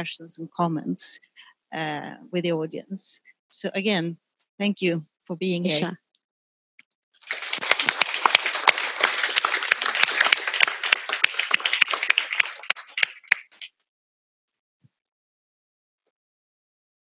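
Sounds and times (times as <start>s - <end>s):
audience applauding: 7.2s - 13.7s.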